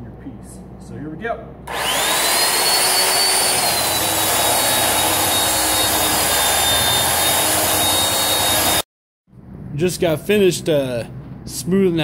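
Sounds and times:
belt sander rasping wood: 0:01.7 - 0:08.8
high whine of sander motor: 0:01.7 - 0:08.8.

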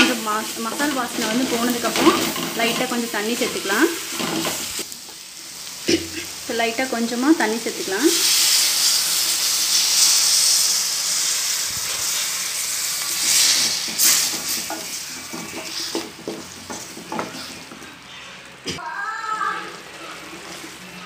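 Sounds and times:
spatula scraping metal pan: 0:00.0 - 0:04.8, 0:13.1 - 0:18.4
water sizzling in hot pan: 0:00.0 - 0:21.0.

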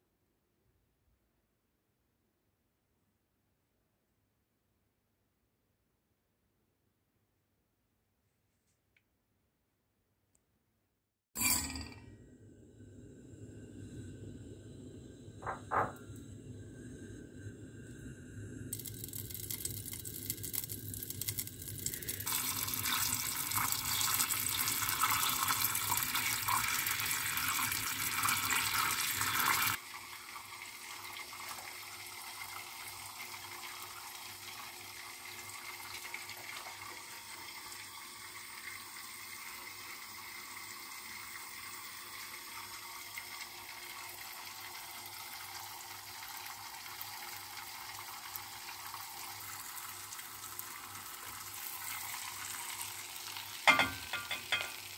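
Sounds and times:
gas burner hissing: 0:12.6 - 0:19.8
butter bubbling and crackling: 0:18.7 - 0:29.8.

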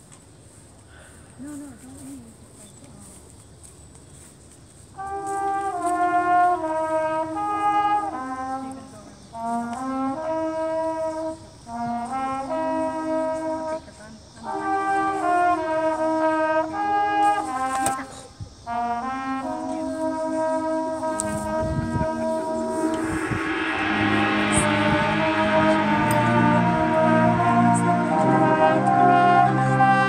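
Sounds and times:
brass band playing held chords: 0:05.0 - 0:30.0.

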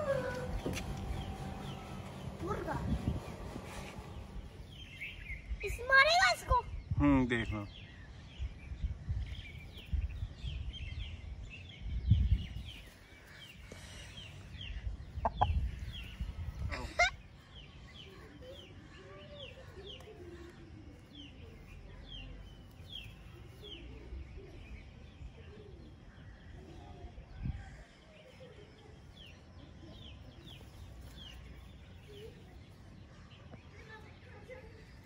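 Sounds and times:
small birds chirping: 0:00.0 - 0:35.0
soft low bird calls: 0:12.2 - 0:34.8.

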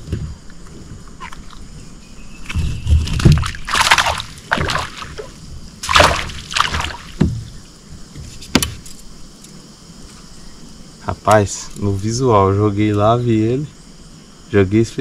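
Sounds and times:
dull knocks: 0:00.0 - 0:01.1, 0:02.5 - 0:08.9
water sloshing around kayak: 0:00.0 - 0:08.8
loud splashes: 0:03.0 - 0:07.2.

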